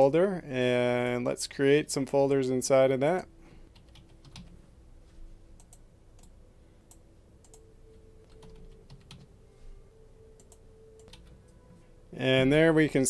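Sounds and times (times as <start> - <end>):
typing on computer keyboard: 3.7 - 4.6, 8.2 - 9.3, 10.4 - 11.4.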